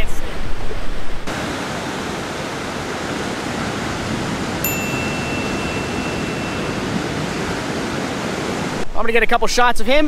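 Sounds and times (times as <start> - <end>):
ocean waves breaking: 0.3 - 8.9
thin high tone: 4.6 - 7.7.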